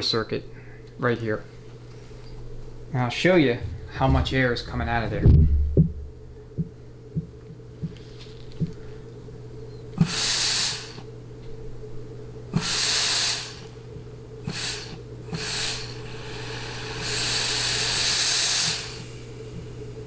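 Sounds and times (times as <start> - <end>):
compressed air hissing bursts: 10.0 - 11.1, 12.5 - 13.8, 14.4 - 19.5
air nozzle click: 17.1 - 19.1.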